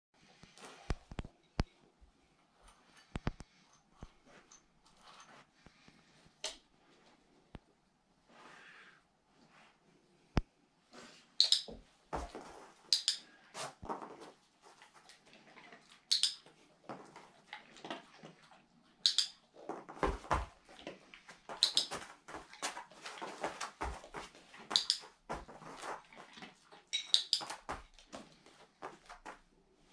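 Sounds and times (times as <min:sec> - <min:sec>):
dog moving on mat and floor: 0:12.2 - 0:12.9, 0:19.6 - 0:29.4.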